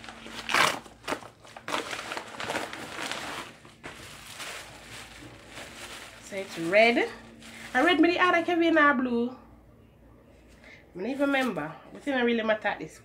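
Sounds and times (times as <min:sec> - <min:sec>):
envelope tearing: 0:00.0 - 0:08.0
packaging crinkling: 0:00.0 - 0:08.5.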